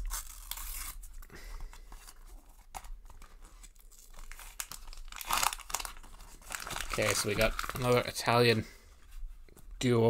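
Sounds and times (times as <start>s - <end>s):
wrapper tearing and crinkling: 0.0s - 1.3s, 2.0s - 8.4s.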